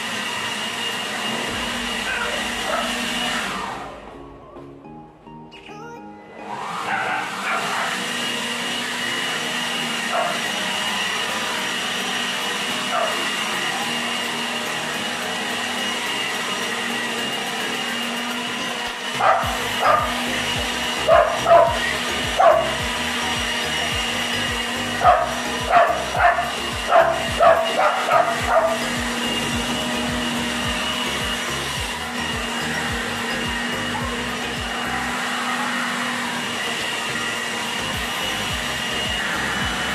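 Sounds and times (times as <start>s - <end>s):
steady whirring drone: 0.0s - 4.7s, 6.3s - 39.9s
dog barking: 2.1s - 3.0s, 10.1s - 10.4s, 19.2s - 20.1s, 21.1s - 21.8s, 22.4s - 22.7s, 25.0s - 28.8s.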